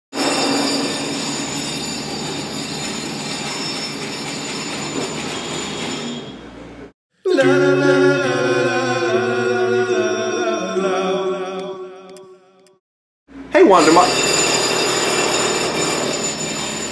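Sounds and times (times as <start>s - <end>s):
jackhammer clattering: 13.8s - 16.9s.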